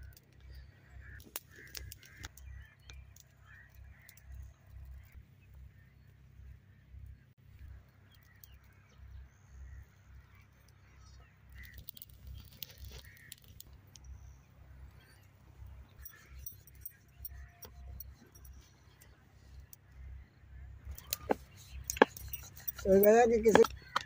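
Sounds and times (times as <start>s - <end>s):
light clicks and ticks: 0.0s - 5.2s, 11.6s - 14.2s.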